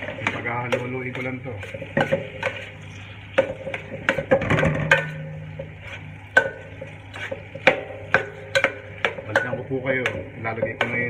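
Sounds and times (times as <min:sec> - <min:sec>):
spatula clacking on steel pan: 0:00.0 - 0:02.7, 0:03.4 - 0:05.8, 0:06.4 - 0:11.0.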